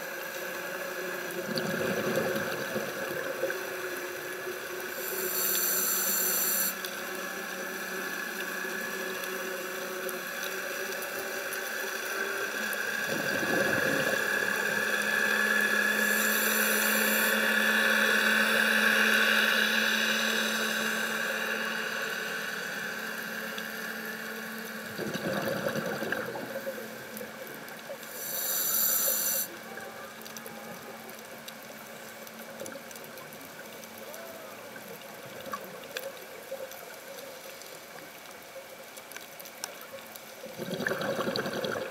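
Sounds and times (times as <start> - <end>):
regulator breathing hiss: 4.9 - 6.9, 15.8 - 18.0, 28.0 - 29.6
bubbles bursting underwater: 24.9 - 26.5, 40.6 - 41.9.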